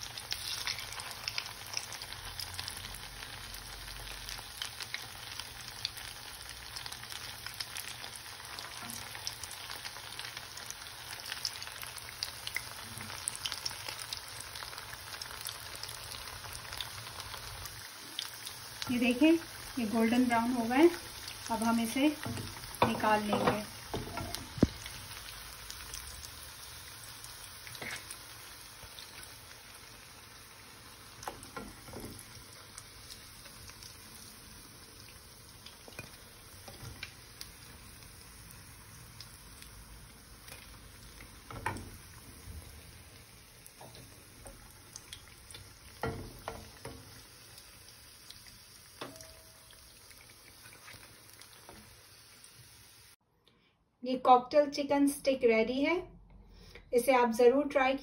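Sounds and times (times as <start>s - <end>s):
oil sizzling in a pan: 0.0s - 53.2s.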